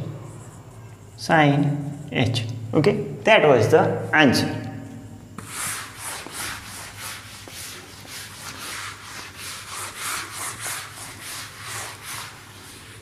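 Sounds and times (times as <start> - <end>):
eraser swishing on whiteboard: 5.4 - 13.0.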